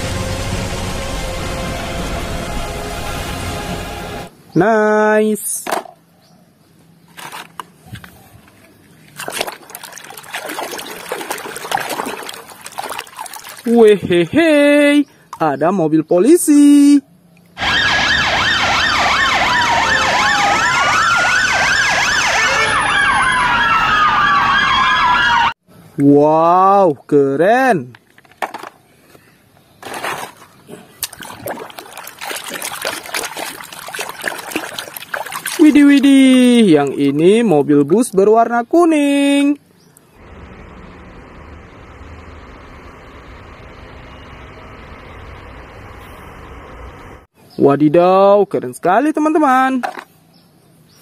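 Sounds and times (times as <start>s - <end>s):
hand sloshing water in a tub: 9.1s - 14.2s, 29.8s - 37.3s.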